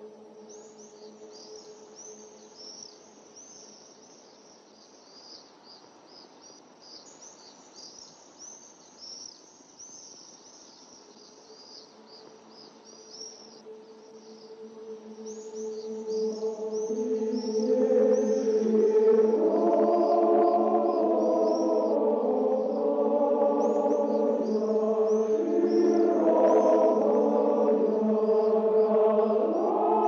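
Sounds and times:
soft musical drone: 0:00.0 - 0:03.4, 0:13.6 - 0:30.0
small birds chirping: 0:00.0 - 0:30.0.

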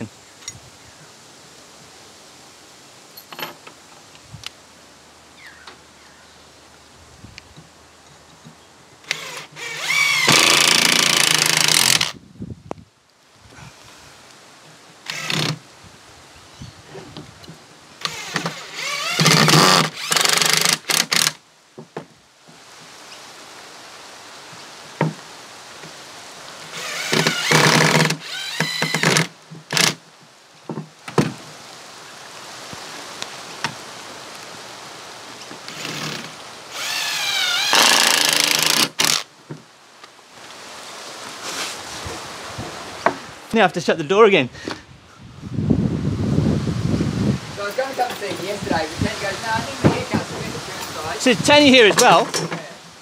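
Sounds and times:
impact driver driving screws: 0:09.1 - 0:12.1, 0:18.0 - 0:21.4, 0:26.8 - 0:30.0, 0:35.7 - 0:39.2.

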